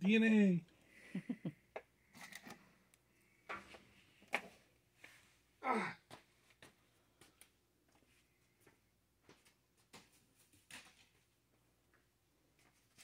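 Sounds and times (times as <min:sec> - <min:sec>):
person sighing: 0:05.6 - 0:06.2.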